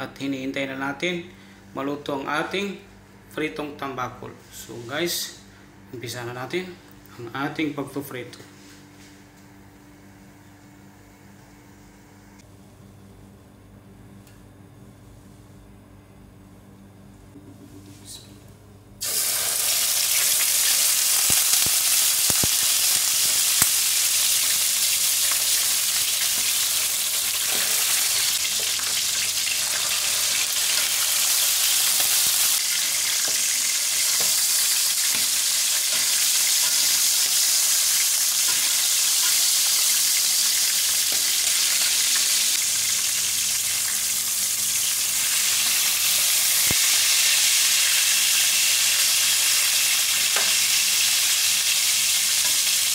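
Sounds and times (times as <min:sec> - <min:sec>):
fish frying in oil: 0:19.0 - 0:52.9.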